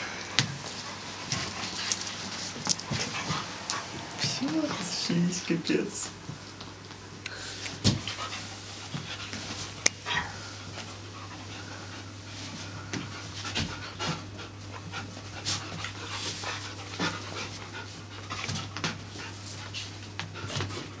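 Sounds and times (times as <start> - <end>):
dogs panting: 0.2 - 6.0, 7.5 - 21.0.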